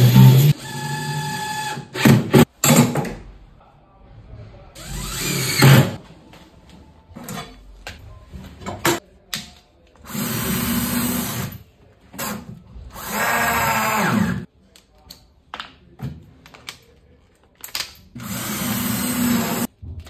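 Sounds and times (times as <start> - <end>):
cordless drill boring: 4.8 - 5.8, 18.2 - 19.7.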